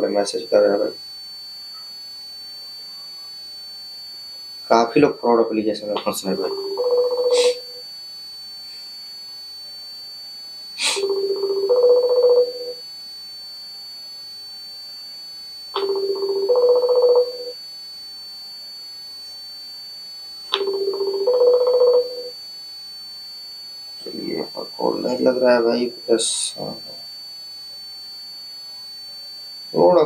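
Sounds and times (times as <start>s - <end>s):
two-note phone ringing: 6.0s - 7.8s, 10.8s - 12.8s, 15.8s - 17.6s, 20.5s - 22.4s.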